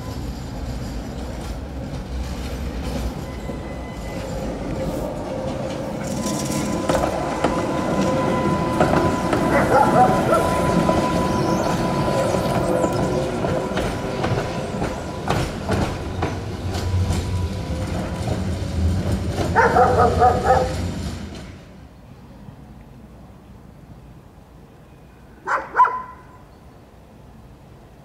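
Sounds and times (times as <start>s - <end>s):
tram wheels squealing: 0.0s - 21.8s
dog barking: 9.5s - 10.5s, 19.5s - 20.8s, 25.4s - 26.3s.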